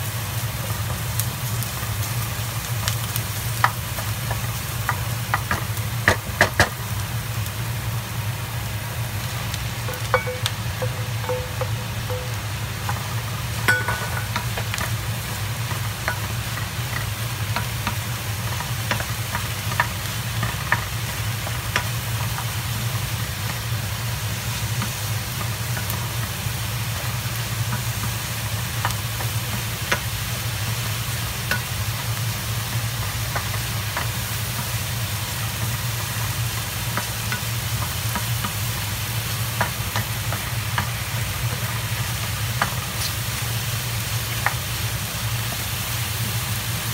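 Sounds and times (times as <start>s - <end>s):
mushrooms and onion sizzling: 0.0s - 46.9s
steady low hum: 8.4s - 15.5s.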